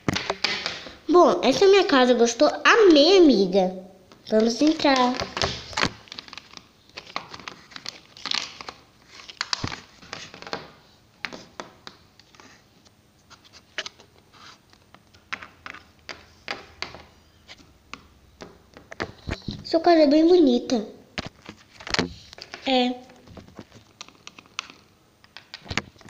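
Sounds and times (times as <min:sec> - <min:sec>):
plastic toys tapping and scraping: 0:14.8 - 0:19.6.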